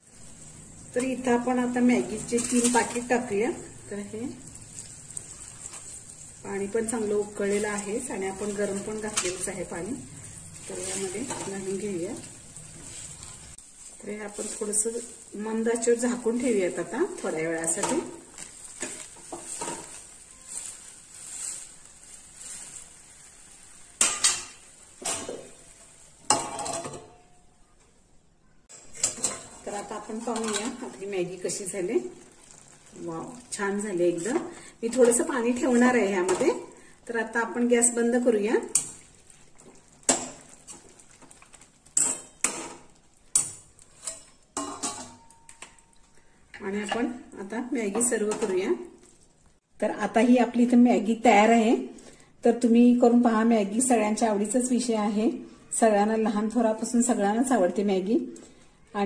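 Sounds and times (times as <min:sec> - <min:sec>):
metal lid clanging on pan: 0:26.3 - 0:27.3, 0:43.4 - 0:45.7
ladle stirring noodles in broth: 0:38.6 - 0:46.1.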